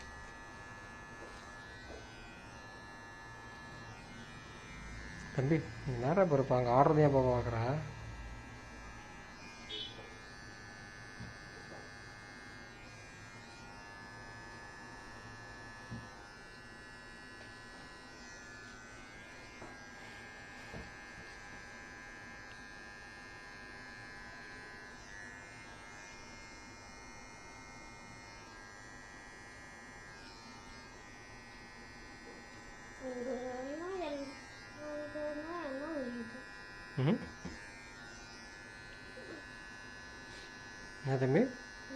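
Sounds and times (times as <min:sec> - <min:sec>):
electric hair clippers buzzing: 0:00.0 - 0:41.9.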